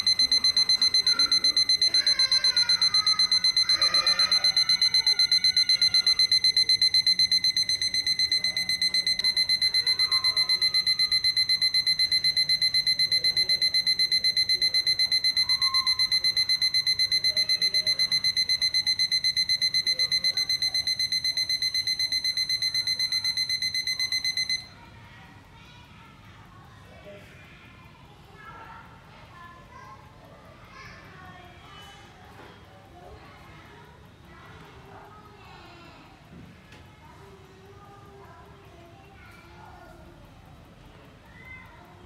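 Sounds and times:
alarm clock beeping rapidly: 0:00.0 - 0:24.8.

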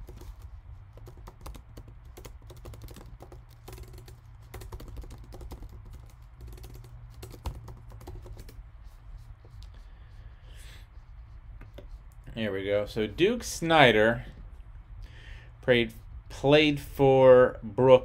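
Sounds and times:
computer keyboard typing: 0:00.0 - 0:08.6
steady low hum: 0:00.0 - 0:18.0.

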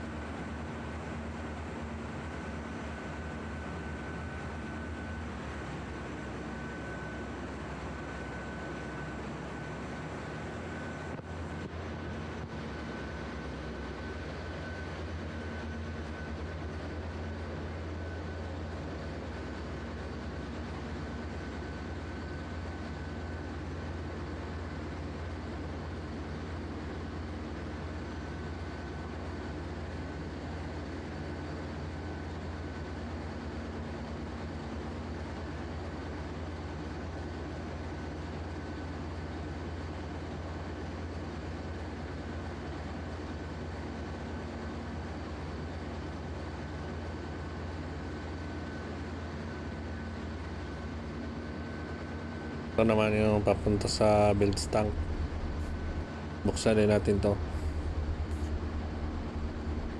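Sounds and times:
high machinery whine: 0:00.0 - 0:33.5, 0:38.3 - 0:59.9
engine room machinery hum: 0:00.0 - 0:59.9
engine-room machinery hum: 0:39.3 - 0:59.9.

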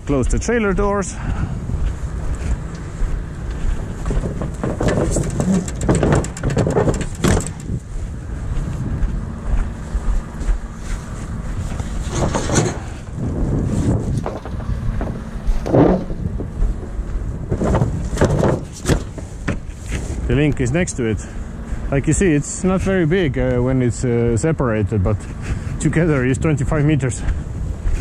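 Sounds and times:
steady low rumble: 0:00.0 - 0:28.0
metal doors clanking shut: 0:04.1 - 0:07.8.

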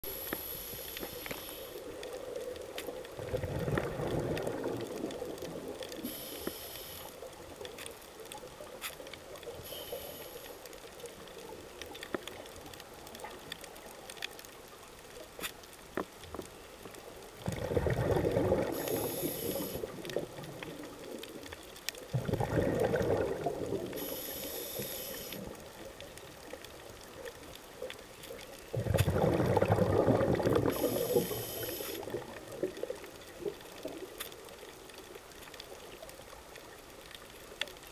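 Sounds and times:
inhaled air hissing: 0:00.0 - 0:01.9, 0:06.0 - 0:07.2, 0:09.6 - 0:10.6, 0:18.7 - 0:20.0, 0:24.0 - 0:25.5, 0:30.6 - 0:32.0
exhaled bubbles gurgling: 0:01.9 - 0:06.4, 0:17.3 - 0:27.6, 0:28.2 - 0:34.2.

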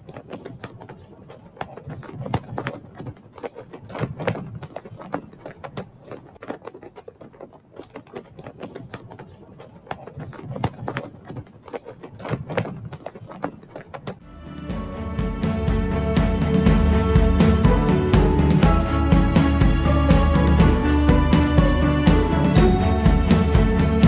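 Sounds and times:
flags flapping in wind: 0:00.0 - 0:14.4.

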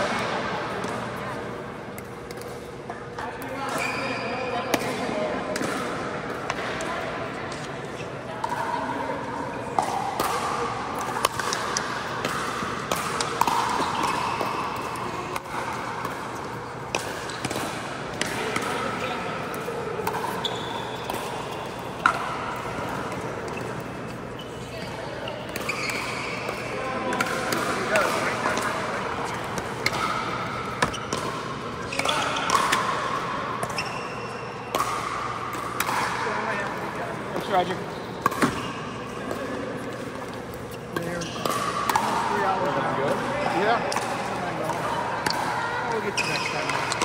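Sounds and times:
ball bouncing on hard court: 0:09.8 - 0:23.9, 0:24.8 - 0:36.8, 0:37.4 - 0:40.3.

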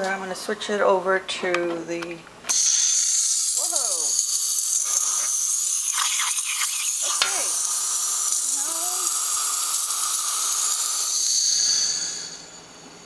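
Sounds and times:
crackling sputter: 0:02.5 - 0:11.4
steam hissing from espresso machine: 0:02.5 - 0:13.0.

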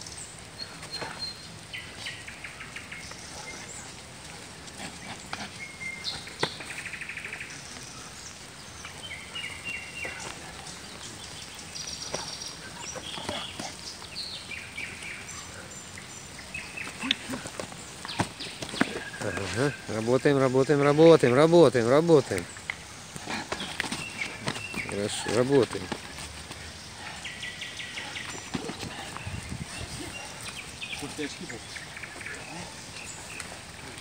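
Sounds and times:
birds whistling and trilling: 0:00.0 - 0:34.0
footsteps on muddy ground: 0:16.6 - 0:20.2, 0:22.2 - 0:34.0.

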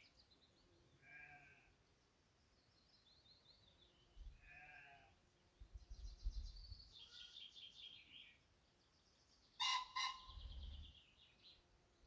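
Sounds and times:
pheasant crowing: 0:09.6 - 0:10.4.

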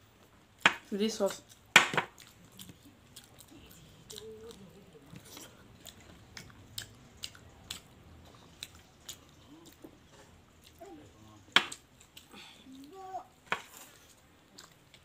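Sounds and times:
crunchy chewing: 0:01.3 - 0:13.0, 0:13.6 - 0:15.0
soft mouth sounds: 0:02.3 - 0:10.8.

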